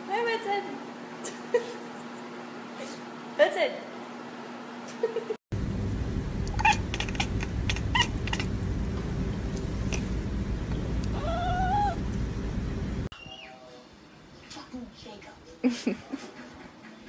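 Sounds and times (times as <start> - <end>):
low rumble: 5.5 - 13.1
cat chirping with clicks: 6.4 - 8.5
cat meowing: 6.5 - 8.5, 11.1 - 12.0.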